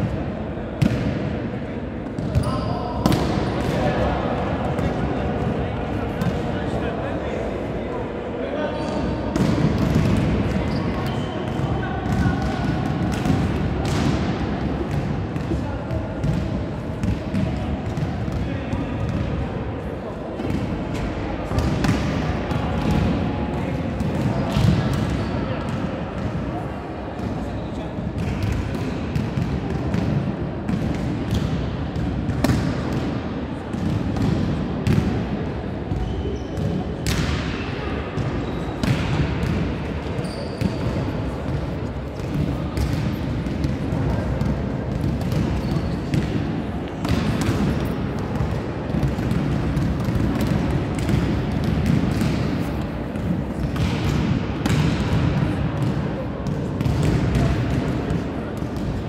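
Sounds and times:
volleyballs slapping and bouncing: 0.0s - 6.9s, 8.8s - 59.0s
players chatting: 0.1s - 28.9s.

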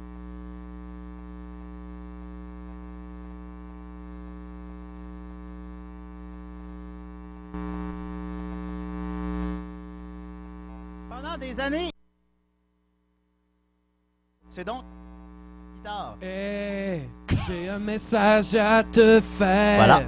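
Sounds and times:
mains hum through sound system: 0.0s - 20.0s.

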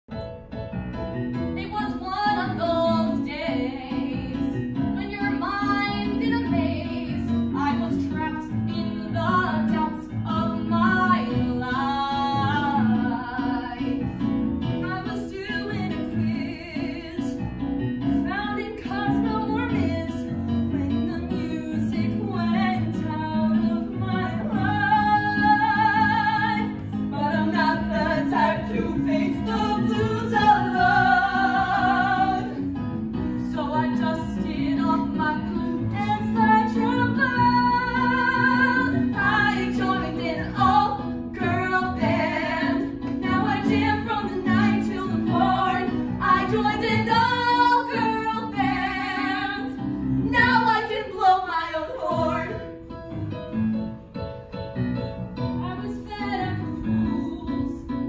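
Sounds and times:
girls singing: 21.7s - 32.6s, 33.4s - 52.6s.

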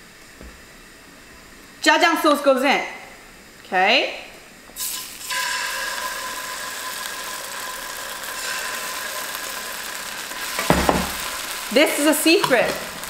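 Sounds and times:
paste sizzling in hot oil: 4.8s - 13.0s.

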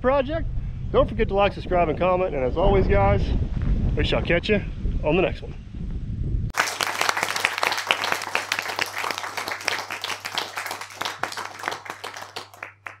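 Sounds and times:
audience clapping: 6.5s - 13.0s.

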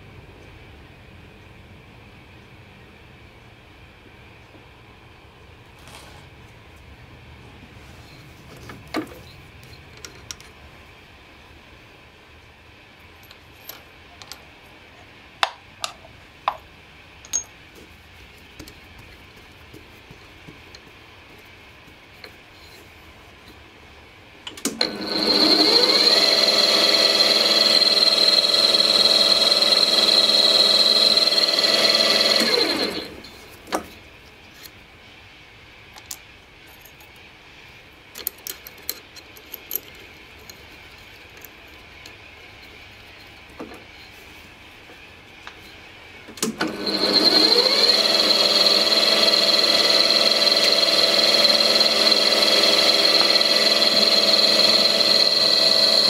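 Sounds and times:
small tools clicking and knocking: 15.4s - 17.6s, 36.0s - 37.3s, 38.1s - 43.7s
drill press motor whining: 24.6s - 33.4s, 46.5s - 56.0s.

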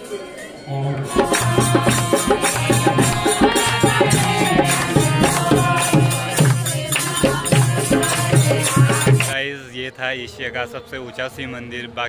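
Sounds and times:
women singing devotional song: 1.0s - 9.4s
hand-clapping: 1.2s - 9.4s.

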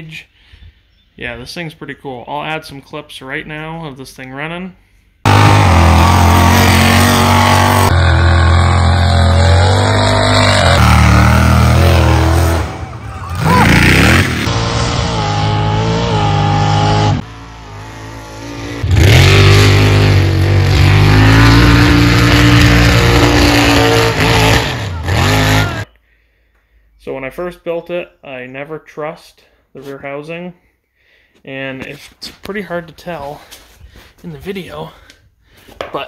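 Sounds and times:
truck engine revving hard: 5.3s - 25.9s.

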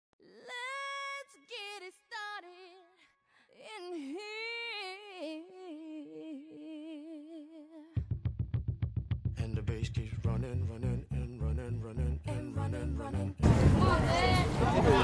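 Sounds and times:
woman singing wordless notes: 3.6s - 8.0s.

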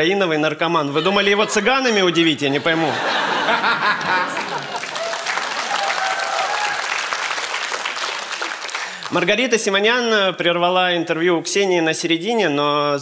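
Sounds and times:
audience applauding: 3.4s - 9.3s.

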